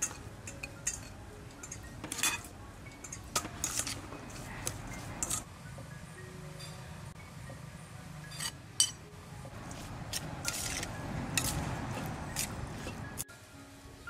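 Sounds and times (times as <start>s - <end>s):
spoon clinking in metal bowl: 0.0s - 5.4s, 8.3s - 9.0s.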